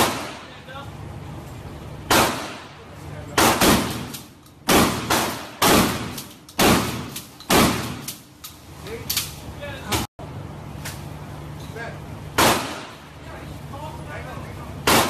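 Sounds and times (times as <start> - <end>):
handgun shots echoing indoors: 2.1 - 2.7, 3.4 - 8.2, 12.4 - 13.0.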